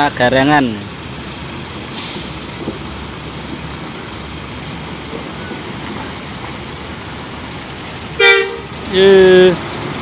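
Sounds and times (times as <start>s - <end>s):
bus engine running: 0.0s - 10.0s.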